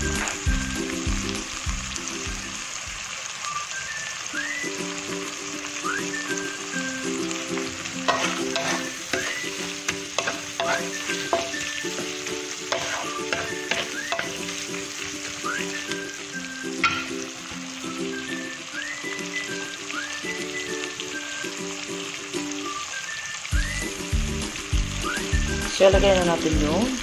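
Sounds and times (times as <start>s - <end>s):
soft music: 0.0s - 3.1s, 4.4s - 22.9s, 23.5s - 27.0s
seafood sizzling in hot oil: 0.0s - 27.0s
spatula scraping and clacking pan: 8.0s - 14.8s, 16.8s - 17.2s.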